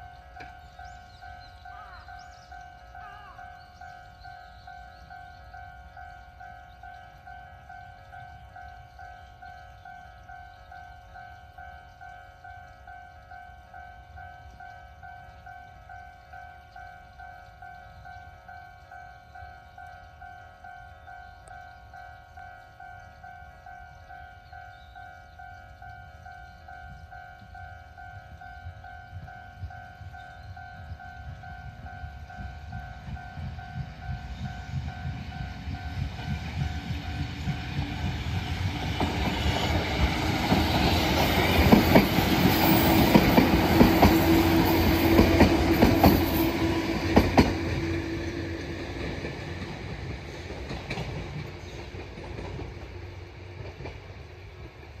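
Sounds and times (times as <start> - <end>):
train hum: 0.0 - 55.0
train wheels clacking: 24.7 - 55.0.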